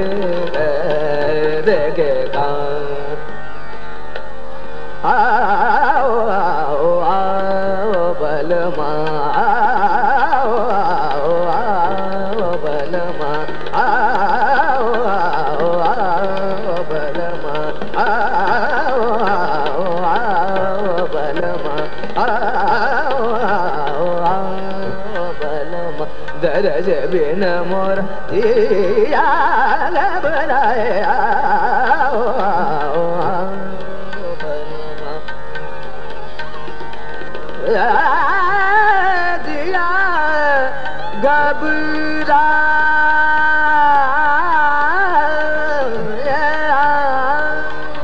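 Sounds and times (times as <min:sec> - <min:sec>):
man singing classical vocal: 0:00.0 - 0:03.4, 0:04.7 - 0:35.4, 0:37.2 - 0:48.0
tabla: 0:00.0 - 0:48.0
tanpura drone: 0:00.0 - 0:48.0.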